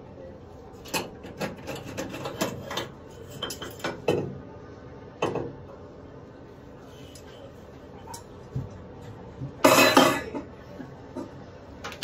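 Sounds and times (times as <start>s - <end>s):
metal funnel scraping and knocking: 1.0s - 4.1s.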